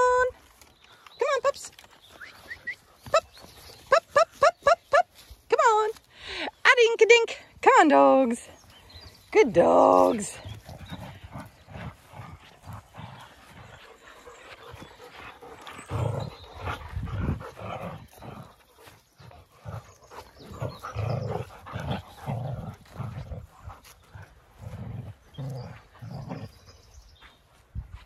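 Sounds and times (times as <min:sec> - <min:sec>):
dogs growling and grunting: 0:09.6 - 0:27.0.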